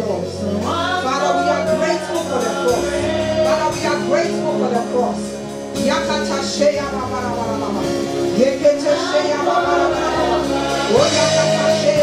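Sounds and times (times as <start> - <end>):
instrumental accompaniment: 0.0 - 12.0
voices singing long held notes: 8.8 - 11.2.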